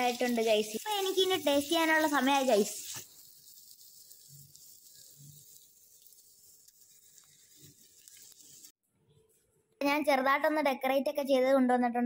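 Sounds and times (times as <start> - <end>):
thin hiss: 0.0 - 8.8.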